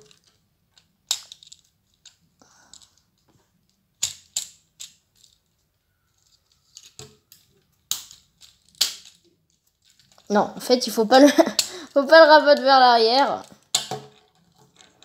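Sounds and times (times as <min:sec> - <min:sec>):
plastic parts clicking: 0:00.0 - 0:10.3, 0:11.4 - 0:11.8.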